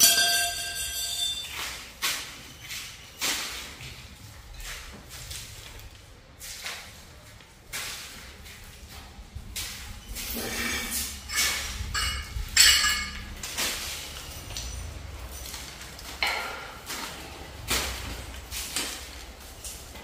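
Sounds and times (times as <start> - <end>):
sharp knocks and clinks: 0.0 - 1.9, 10.1 - 16.9.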